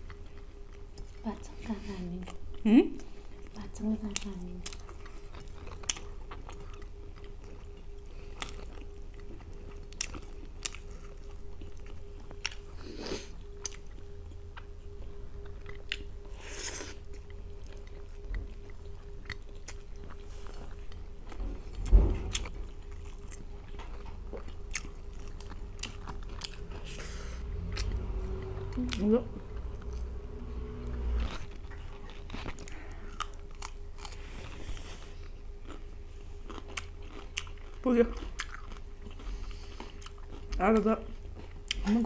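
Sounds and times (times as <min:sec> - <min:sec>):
faint steady hum: 0:00.0 - 0:42.0
chewing and mouth smacks: 0:02.2 - 0:14.8, 0:15.4 - 0:16.1, 0:16.9 - 0:27.0, 0:31.2 - 0:34.6, 0:35.6 - 0:41.9
food crunching: 0:03.4 - 0:30.1, 0:30.8 - 0:42.0
low thump: 0:21.8 - 0:22.5.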